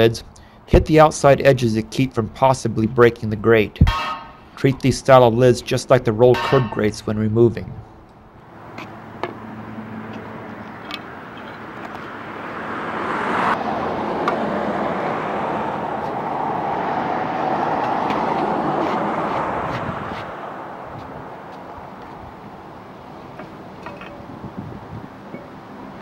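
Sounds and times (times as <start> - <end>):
pick clinking on metal grate: 6.4 - 6.9
vehicle passing: 7.8 - 26.0.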